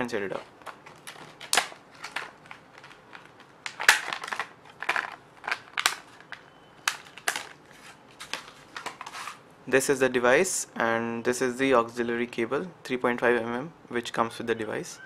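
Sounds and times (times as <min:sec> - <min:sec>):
plastic blister pack crackling: 0:00.4 - 0:09.4.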